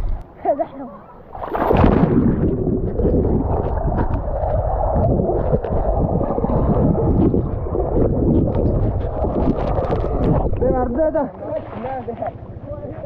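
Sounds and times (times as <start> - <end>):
muffled underwater bubbles churning: 1.2 - 13.0.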